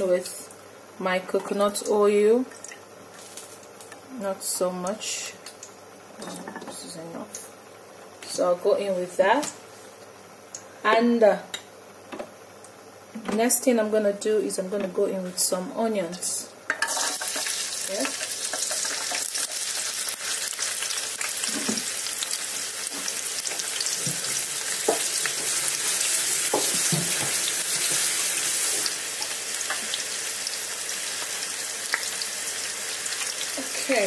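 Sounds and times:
onions sizzling in oil: 16.1 - 34.0.

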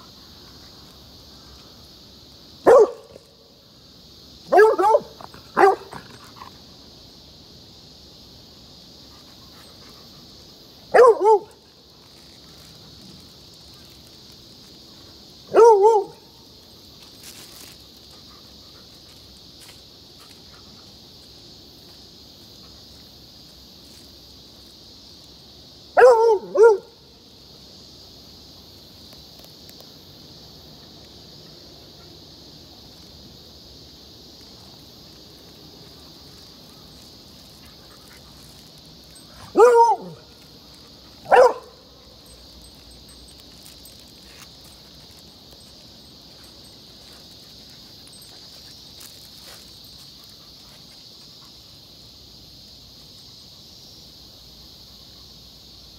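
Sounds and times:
dog barking: 2.6 - 3.2, 4.5 - 6.0, 10.9 - 11.5, 15.5 - 16.2, 26.0 - 27.0, 39.4 - 40.3, 41.3 - 41.8.

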